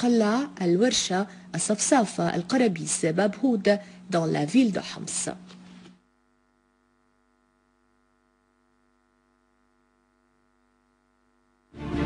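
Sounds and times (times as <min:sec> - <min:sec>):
faint electrical mains hum: 0:00.0 - 0:12.0
loud news interlude music: 0:11.8 - 0:12.0.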